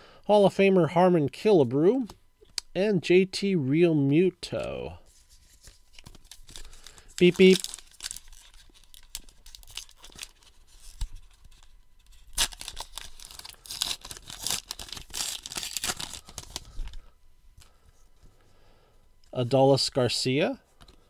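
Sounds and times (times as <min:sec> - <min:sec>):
wrapper ripping and crinkling: 0:05.4 - 0:17.0.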